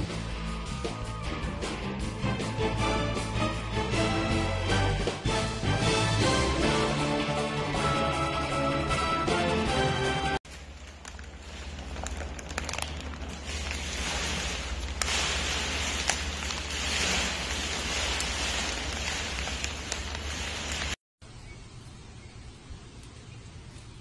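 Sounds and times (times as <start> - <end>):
foil snack bag crinkling: 10.5 - 21.0.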